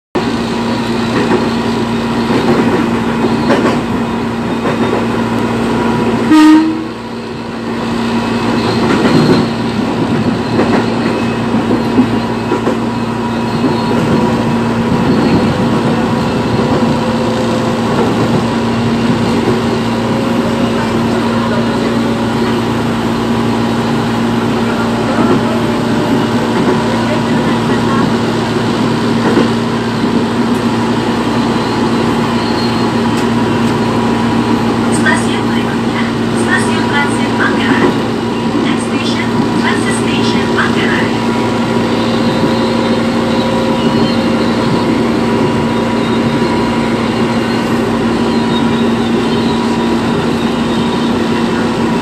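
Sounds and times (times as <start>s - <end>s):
train hum and rumble: 0.2s - 52.0s
train horn blast: 6.2s - 7.0s.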